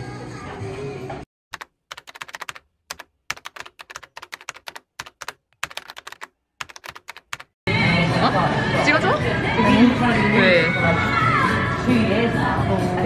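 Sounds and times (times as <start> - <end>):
laptop keyboard typing: 1.5 - 7.6.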